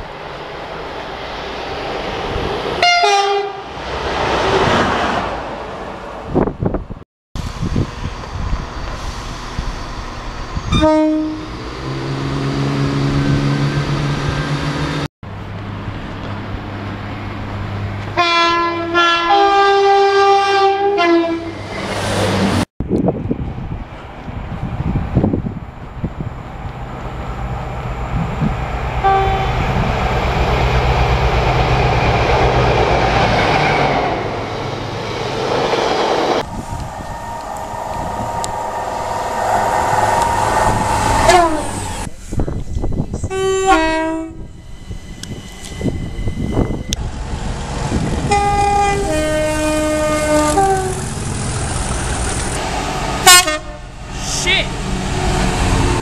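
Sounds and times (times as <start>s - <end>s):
trains passing at speed: 0.0s - 56.0s
two-tone train horn: 2.8s - 3.7s, 10.7s - 11.6s, 18.2s - 21.6s, 29.0s - 29.7s, 36.4s - 41.8s, 43.2s - 44.5s, 48.2s - 51.0s, 53.2s - 53.9s.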